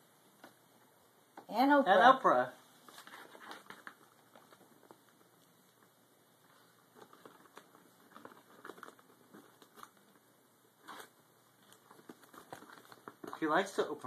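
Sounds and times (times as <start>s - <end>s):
paper bag rustling: 2.8s - 5.3s, 6.5s - 14.0s.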